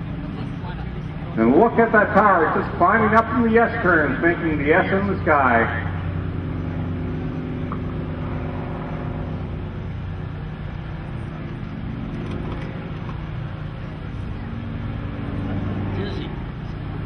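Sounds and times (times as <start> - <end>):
radial aircraft engine droning: 0.0 - 17.0.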